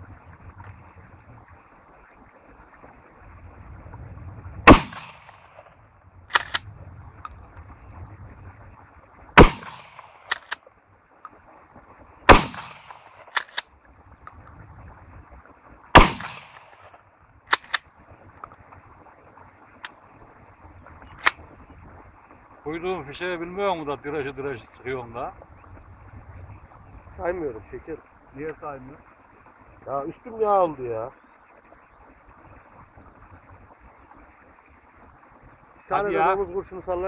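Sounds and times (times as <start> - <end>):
shotgun shots: 4.7 - 5.7, 9.4 - 10.6, 12.3 - 13.6, 16.0 - 16.8
shotgun slide clicks: 6.3 - 6.7, 10.3 - 10.6, 13.3 - 13.7, 17.5 - 17.8.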